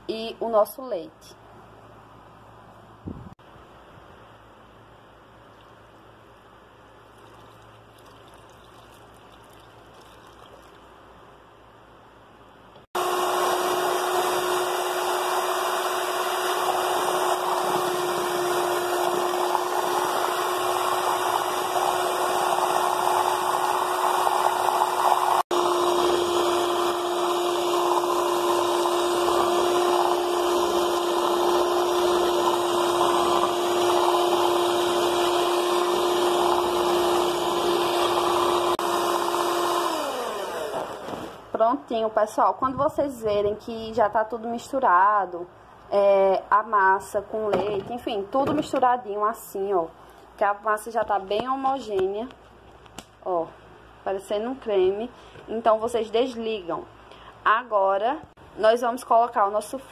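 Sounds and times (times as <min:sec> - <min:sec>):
electric hand mixer whining: 0:13.0 - 0:41.4.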